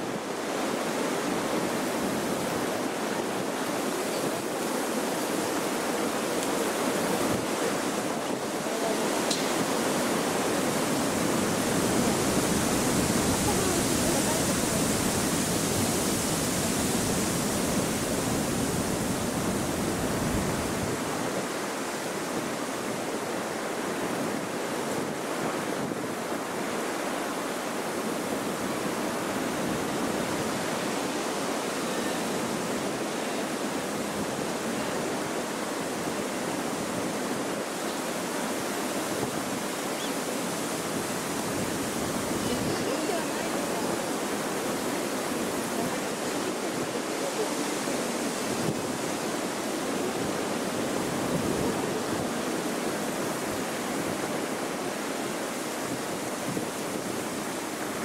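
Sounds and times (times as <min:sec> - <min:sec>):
wind buffeting microphone: 0:01.1 - 0:26.6, 0:38.6 - 0:54.4.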